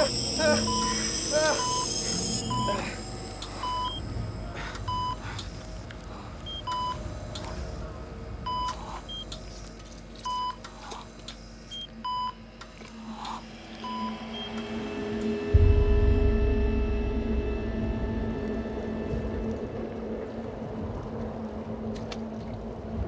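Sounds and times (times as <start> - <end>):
patient monitor beeping: 0.0 - 5.4, 6.4 - 7.0, 8.4 - 9.4, 13.8 - 14.9
low drone: 0.0 - 23.0
low steady hum: 0.0 - 23.0.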